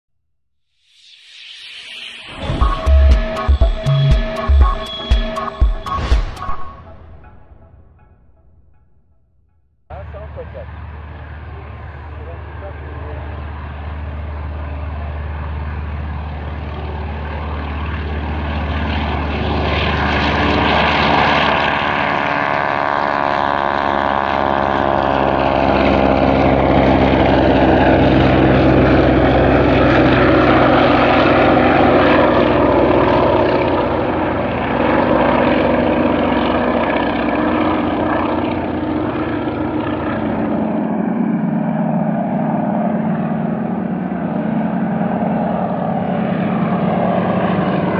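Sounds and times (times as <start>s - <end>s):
propeller aircraft flying by: 9.9s - 47.9s.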